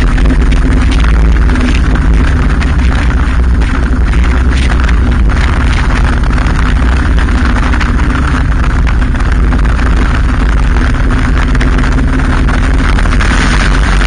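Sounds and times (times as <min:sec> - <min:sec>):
motorcycle engine running: 0:00.0 - 0:14.0
wind rushing over microphone: 0:00.0 - 0:14.0.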